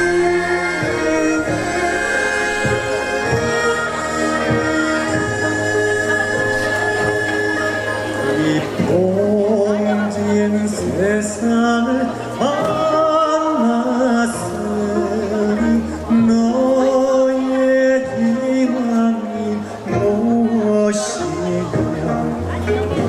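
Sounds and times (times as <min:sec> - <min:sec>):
man singing into a microphone: 0:00.0 - 0:23.0
traditional orchestra playing: 0:00.0 - 0:23.0.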